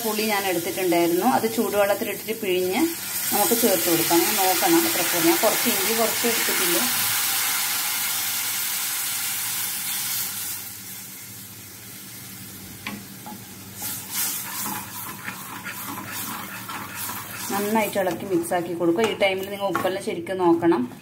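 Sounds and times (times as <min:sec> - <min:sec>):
liquid sizzling in hot pan: 0:00.0 - 0:18.4
wooden spatula scraping a pan: 0:13.8 - 0:21.0.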